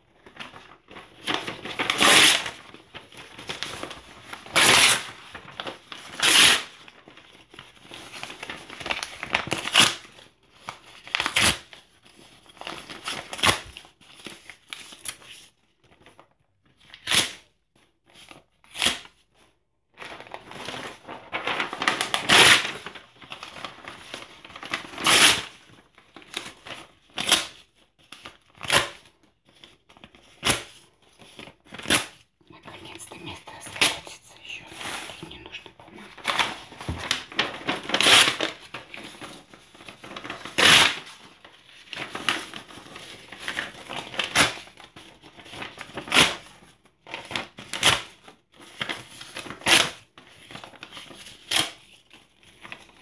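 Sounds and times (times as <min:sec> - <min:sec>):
paper crinkling: 0:00.1 - 0:17.1, 0:17.8 - 0:53.0
paper tearing: 0:01.2 - 0:02.7, 0:03.4 - 0:06.8, 0:20.4 - 0:23.0, 0:24.1 - 0:25.6, 0:34.7 - 0:41.3.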